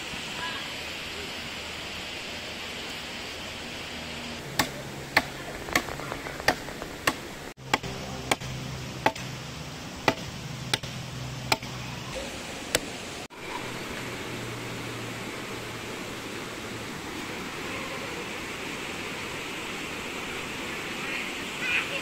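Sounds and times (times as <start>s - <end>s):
hatchet chopping a branch: 4.4s - 9.4s, 10.0s - 11.8s.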